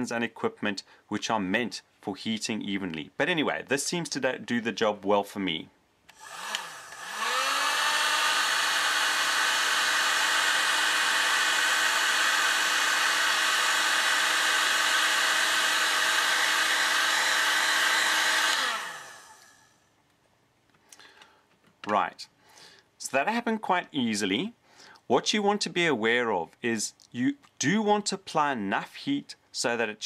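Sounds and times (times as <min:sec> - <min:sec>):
heat gun fan whine: 0:06.1 - 0:19.7.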